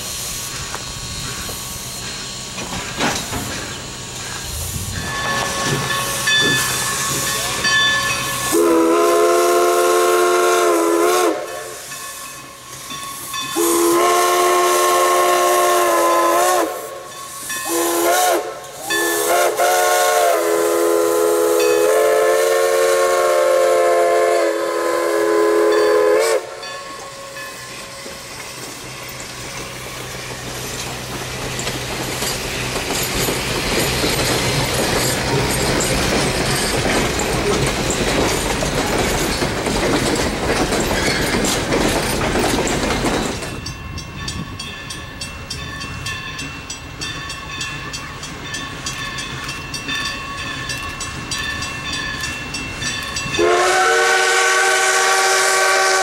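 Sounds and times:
steam hissing: 0.0 - 43.8
train cars rolling past: 0.0 - 56.0
steam whistle blasts: 8.3 - 12.0, 13.5 - 26.7, 53.4 - 56.0.

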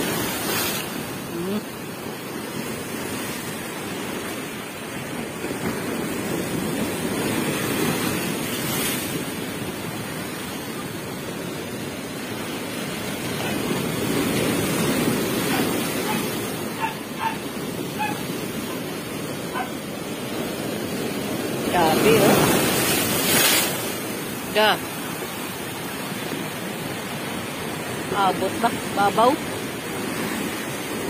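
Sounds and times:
storm surf rushing: 0.0 - 31.0
dog barking: 15.4 - 18.8, 19.5 - 19.8.

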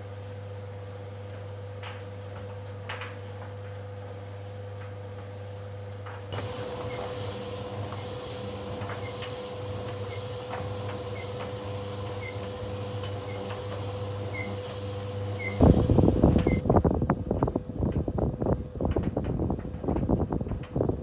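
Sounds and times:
tumble dryer motor hum: 0.0 - 21.0
gusty rush of air: 15.6 - 21.0.

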